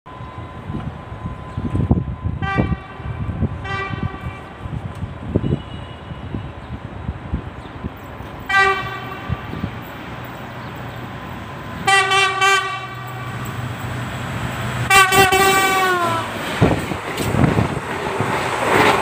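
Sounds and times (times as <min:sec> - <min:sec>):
rush of passing train: 0:00.1 - 0:19.0
train horn blasts: 0:02.4 - 0:04.5, 0:05.4 - 0:06.5, 0:08.5 - 0:09.7, 0:11.8 - 0:13.5, 0:14.9 - 0:16.3.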